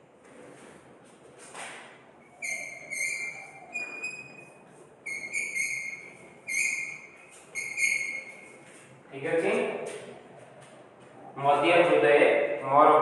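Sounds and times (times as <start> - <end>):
chalk squeaking on blackboard: 2.4 - 8.6.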